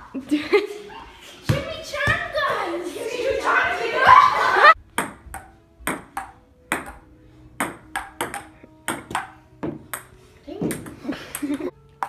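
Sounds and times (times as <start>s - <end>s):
ping-pong ball clicking: 5.0s - 7.0s, 7.6s - 10.1s.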